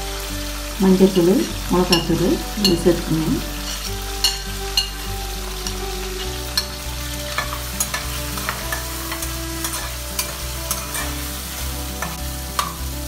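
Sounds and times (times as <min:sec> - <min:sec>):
background music: 0:00.0 - 0:13.0
food sizzling in oil: 0:00.0 - 0:13.0
metal spatula scraping a pan: 0:03.4 - 0:13.0.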